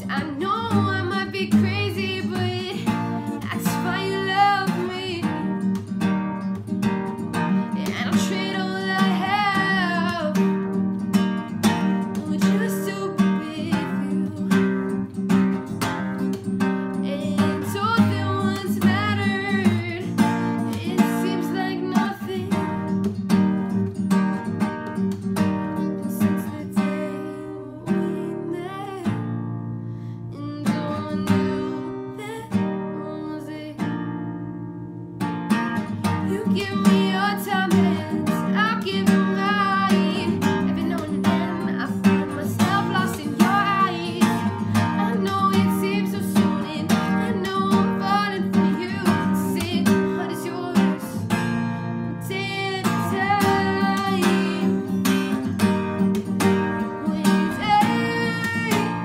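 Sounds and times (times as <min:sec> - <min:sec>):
woman singing: 0:00.0 - 0:23.8, 0:24.9 - 0:34.5, 0:35.7 - 0:59.0
strummed acoustic guitar: 0:00.0 - 0:59.0.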